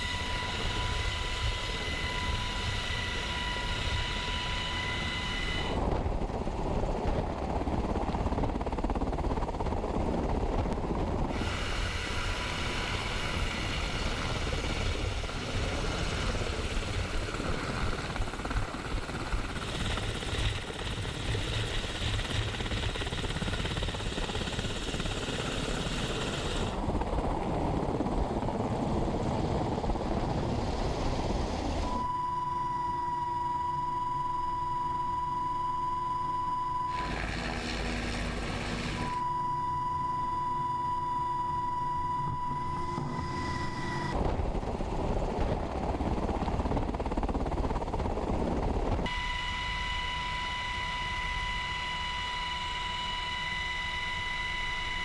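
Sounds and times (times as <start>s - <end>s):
high-pitched whine: 0.0s - 6.2s, 11.2s - 28.0s, 29.7s - 44.4s, 49.0s - 55.0s
helicopter rotor rumbling din: 0.0s - 55.0s.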